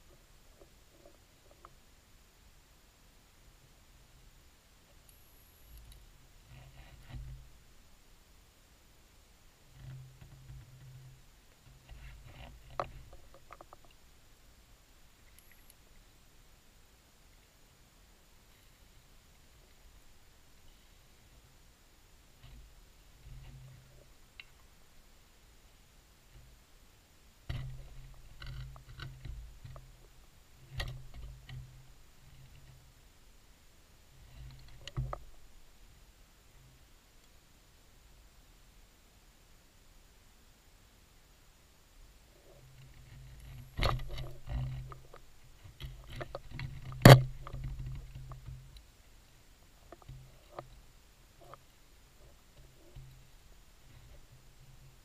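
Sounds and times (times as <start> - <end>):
low underwater hum: 0.0 - 55.0
underwater clicks and knocks: 11.7 - 14.0, 27.5 - 30.0, 34.3 - 35.3, 42.8 - 48.7.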